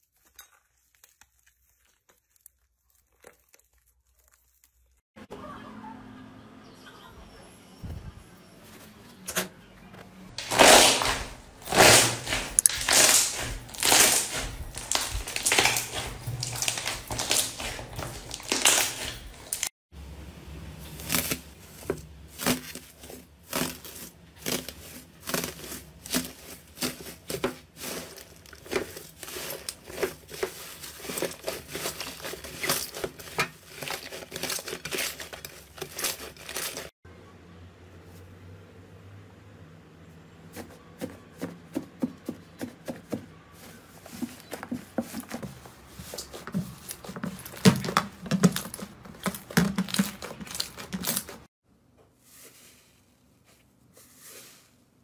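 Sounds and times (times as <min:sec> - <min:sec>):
foil crinkling: 0:00.0 - 0:05.0, 0:10.4 - 0:19.7, 0:20.8 - 0:36.9, 0:43.6 - 0:51.5
sticky slime popping: 0:10.4 - 0:19.7.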